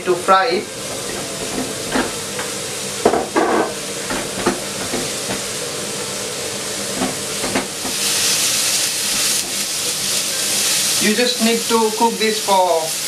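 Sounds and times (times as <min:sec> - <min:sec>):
eggplant sizzling in oil: 0:00.0 - 0:13.0
spatula knocking and scraping pan: 0:03.0 - 0:05.6, 0:06.9 - 0:08.0.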